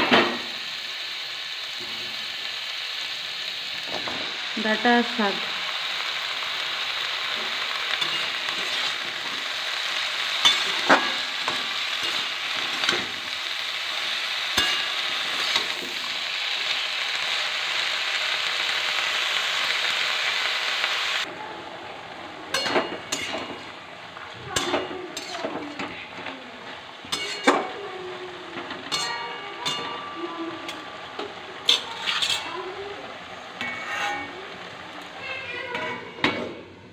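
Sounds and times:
vegetables sizzling in oil: 0:00.0 - 0:36.9
spatula scraping a wok: 0:07.1 - 0:16.8, 0:24.6 - 0:27.8, 0:28.6 - 0:30.0, 0:30.7 - 0:32.7, 0:33.4 - 0:34.8.

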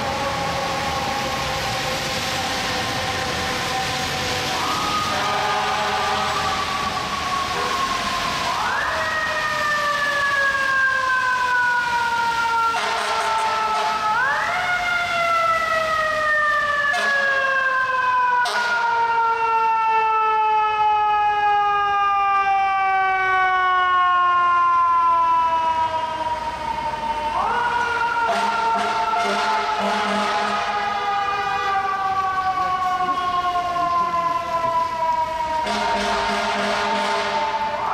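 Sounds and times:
fire truck siren wailing: 0:00.0 - 0:37.9.

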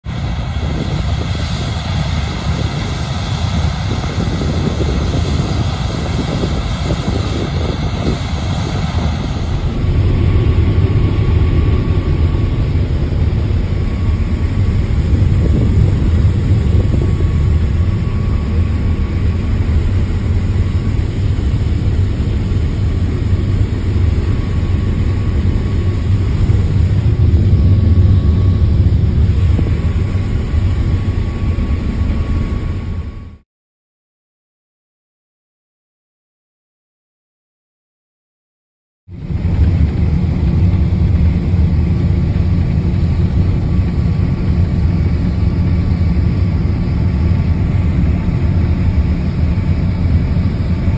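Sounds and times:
tractor engines running: 0:00.1 - 0:33.1
low engine drone inside cab: 0:04.1 - 0:33.4, 0:39.1 - 0:50.9.

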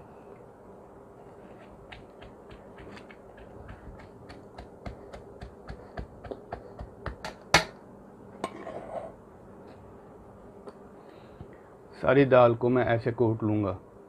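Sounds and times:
wooden pestle pounding in mortar: 0:01.8 - 0:07.7.

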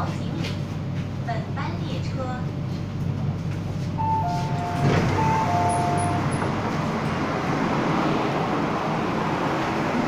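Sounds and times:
train hum: 0:00.0 - 0:10.0
train doors clunk: 0:03.5 - 0:07.2
two-note door chime: 0:04.0 - 0:06.3.

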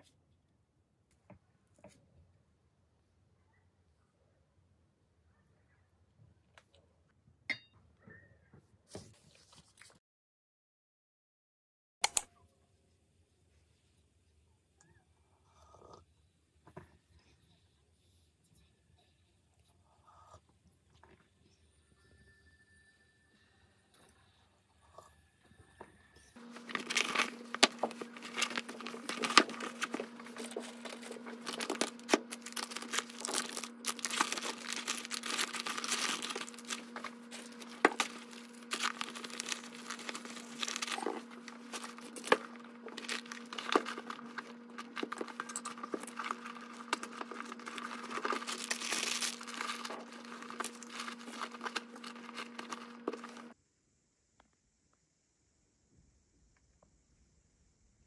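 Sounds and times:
plastic packaging crinkling: 0:26.4 - 0:53.6
steady low hum: 0:26.4 - 0:53.6.

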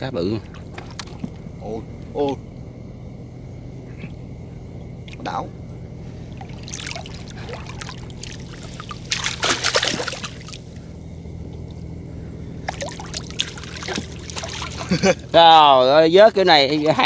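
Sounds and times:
boat motor idling: 0:00.0 - 0:17.0
water splashing and dripping: 0:06.4 - 0:10.8, 0:12.7 - 0:15.0.

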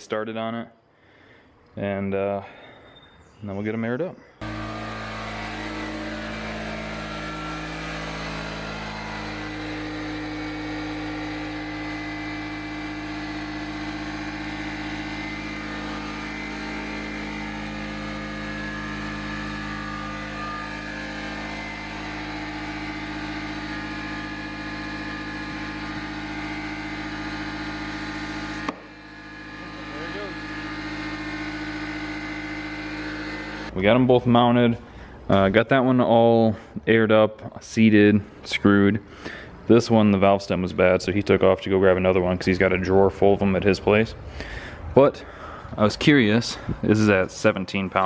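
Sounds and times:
air compressor running: 0:04.4 - 0:35.3, 0:38.2 - 0:39.7, 0:43.2 - 0:48.0
air hissing through hose: 0:27.9 - 0:28.8.

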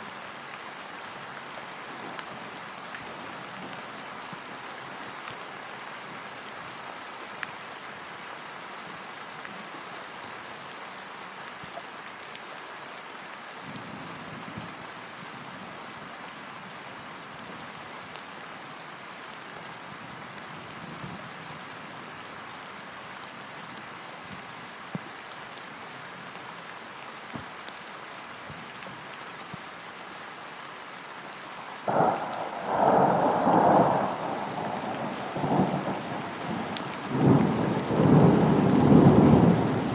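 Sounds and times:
rain falling on a lake: 0:00.0 - 0:39.9
loud thunderclap: 0:31.9 - 0:39.7
low rumble of thunder: 0:31.9 - 0:39.9.

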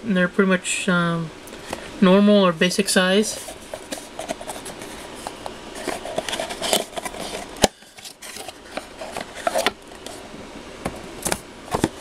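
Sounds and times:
cardboard box rustling: 0:03.2 - 0:10.4, 0:11.2 - 0:12.0.

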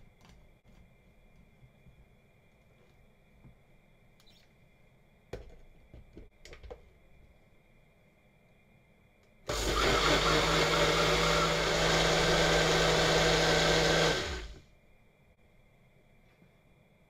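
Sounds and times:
blender motor running: 0:09.5 - 0:14.6.

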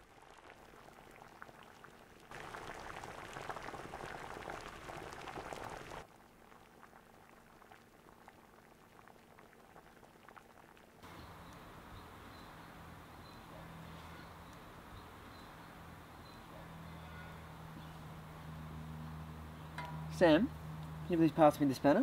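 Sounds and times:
food sizzling and bubbling: 0:00.0 - 0:16.8.

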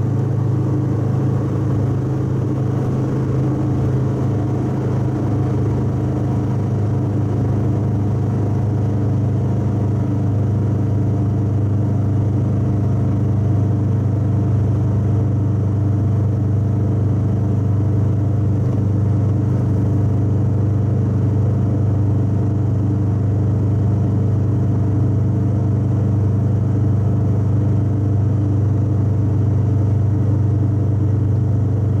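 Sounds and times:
road noise: 0:00.0 - 0:13.2, 0:18.3 - 0:20.1
car engine low drone: 0:00.0 - 0:32.0.

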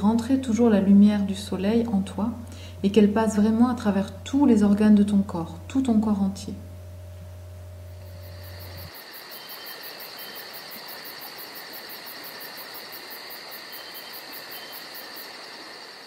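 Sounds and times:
high-pitched buzz: 0:00.0 - 0:09.0
low hum: 0:00.0 - 0:09.0
insects chirping: 0:06.8 - 0:16.0.

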